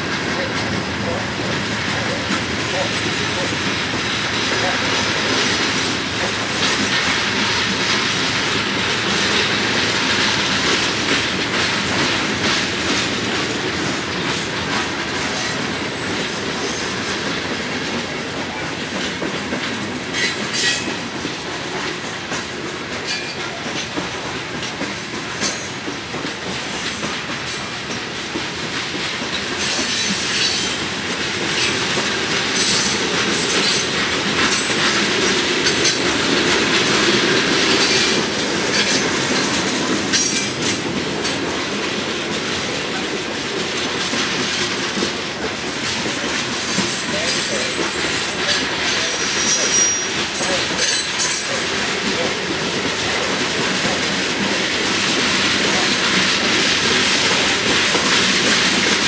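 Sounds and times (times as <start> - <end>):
train wheels clicking over rail joints: 0.0 - 59.0.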